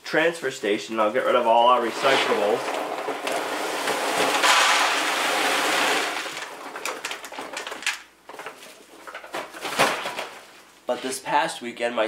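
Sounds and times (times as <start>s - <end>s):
dry feed pouring into bucket: 1.6s - 7.2s.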